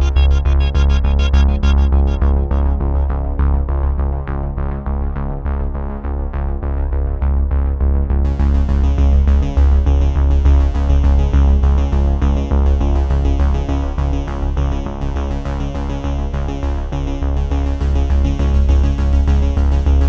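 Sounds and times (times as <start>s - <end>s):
electronic music with synthesizer: 0.0s - 4.2s
pulsing bass beat: 0.0s - 5.3s.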